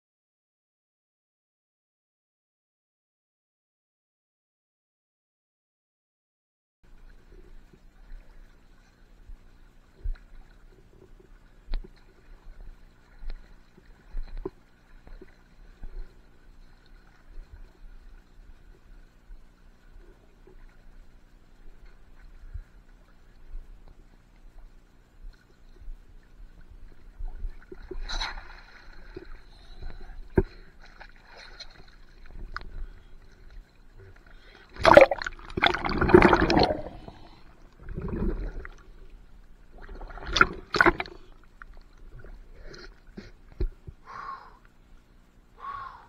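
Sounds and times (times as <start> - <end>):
water splashing and gurgling: 6.9 - 44.0
short breaths or voice sounds: 44.0 - 44.6, 45.6 - 46.0.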